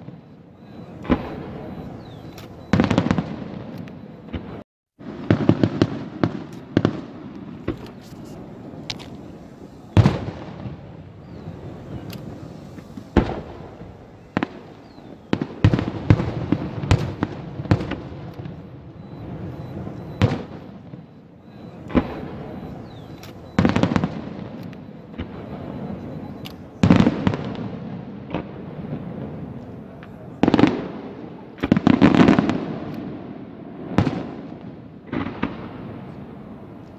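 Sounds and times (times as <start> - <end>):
fireworks bursting with bangs: 0.0 - 36.9.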